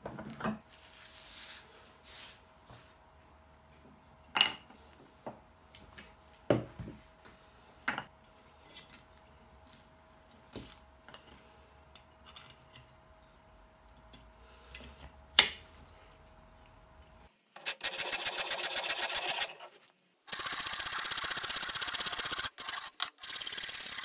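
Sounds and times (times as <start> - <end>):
faint steady hum: 0.0 - 17.7.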